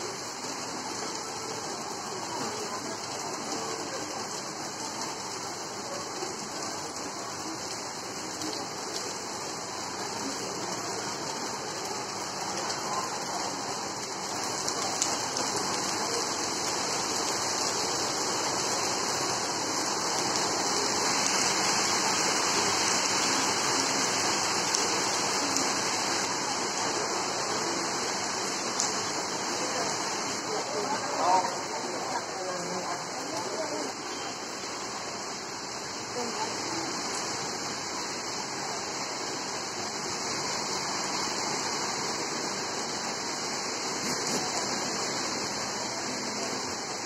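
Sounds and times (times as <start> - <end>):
heavy rain falling: 0.0 - 47.0.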